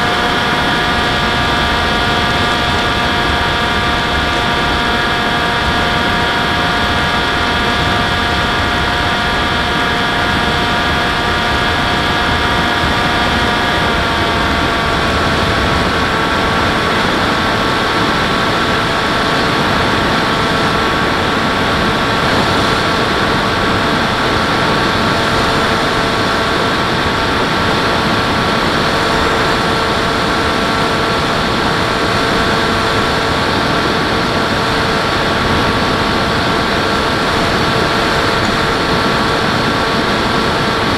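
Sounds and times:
model airplane motor whine: 0:00.0 - 0:40.9.

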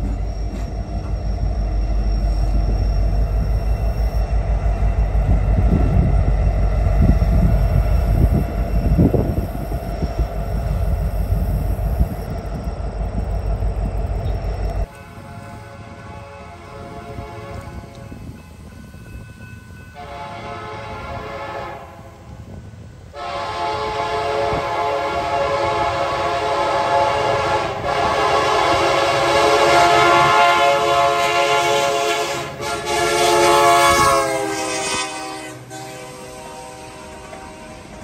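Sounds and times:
train rumble: 0:00.0 - 0:38.0
locomotive air horn: 0:14.9 - 0:18.4, 0:20.0 - 0:38.0.

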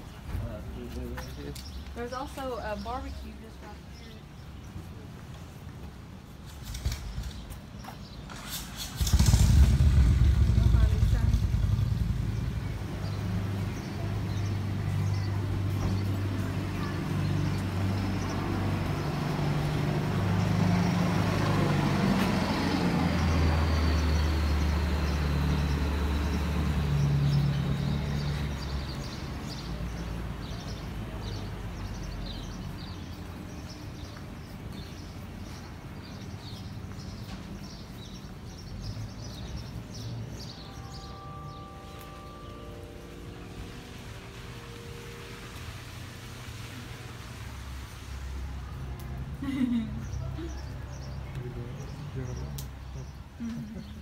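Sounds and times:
vehicle engine passing: 0:08.2 - 0:34.6, 0:38.7 - 0:54.0.

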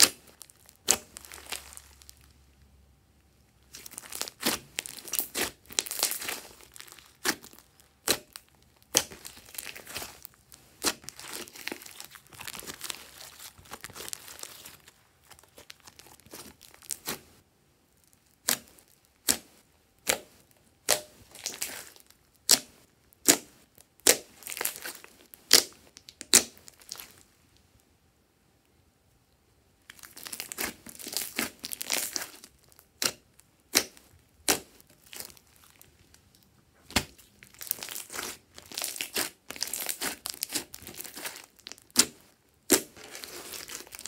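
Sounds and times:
slime crackling and squelching: 0:00.0 - 0:02.7, 0:03.5 - 0:27.3, 0:29.8 - 0:44.0
slime popping: 0:03.7 - 0:17.2, 0:29.9 - 0:44.0.

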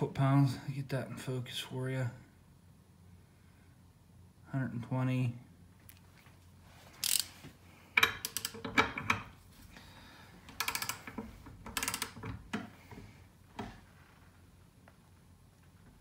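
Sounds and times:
torque wrench ratcheting clicks: 0:07.0 - 0:07.3, 0:08.0 - 0:08.9, 0:10.6 - 0:12.2.

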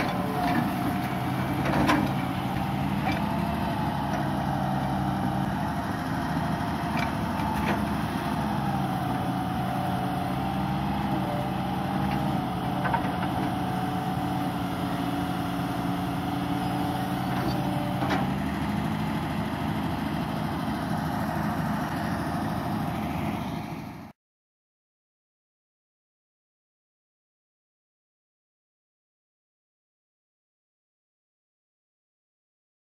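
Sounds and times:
excavator diesel engine running: 0:00.0 - 0:24.1.

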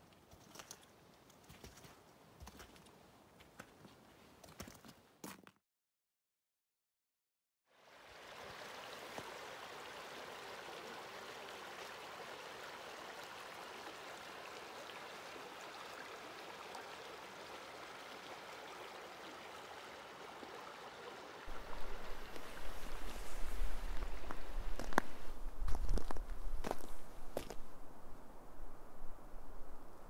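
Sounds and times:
creek water running: 0:07.7 - 0:27.8.

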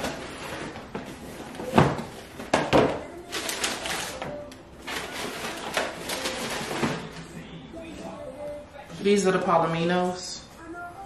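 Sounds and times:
tissue paper rustling: 0:03.3 - 0:07.3.

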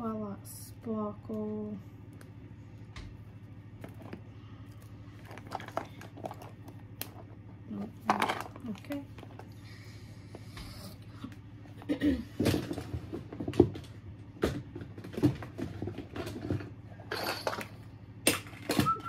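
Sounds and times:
plastic toys clattering: 0:05.2 - 0:09.5, 0:12.4 - 0:19.0.

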